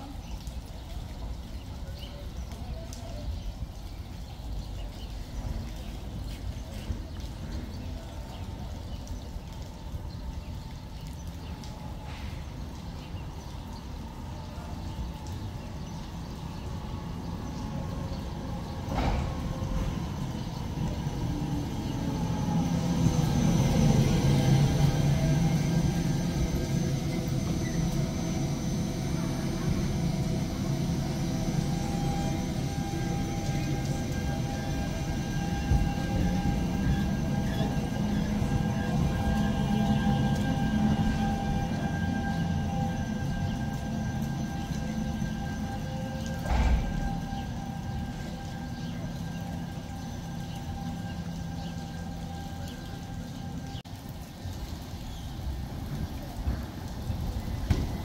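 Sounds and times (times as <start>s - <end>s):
electrical hum: 11.6s - 53.8s
tram rumbling on track: 16.0s - 53.8s, 55.7s - 58.0s
tram clatter: 17.7s - 28.1s, 29.0s - 49.6s.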